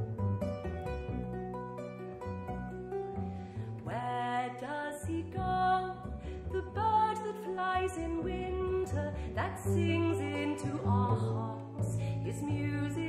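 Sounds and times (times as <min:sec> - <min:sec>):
double bass low notes: 0:00.0 - 0:13.0
kora plucked strings: 0:00.0 - 0:13.0
person singing: 0:03.8 - 0:13.0.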